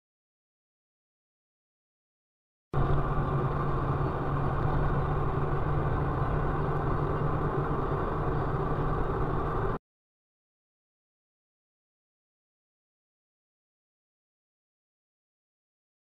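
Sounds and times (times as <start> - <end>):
car cabin road drone: 2.8 - 9.8.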